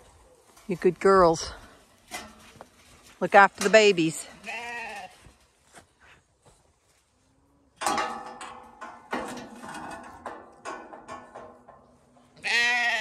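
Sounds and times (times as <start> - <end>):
lambs bleating: 4.4 - 5.2, 12.4 - 13.0
knocks and clattering: 7.8 - 12.2.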